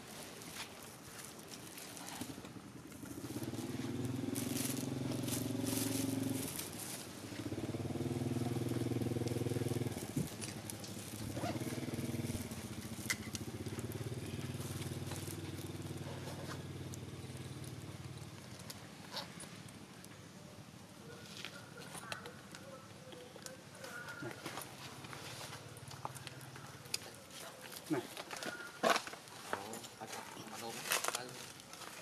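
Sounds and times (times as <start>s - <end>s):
engine running: 2.3s - 19.8s.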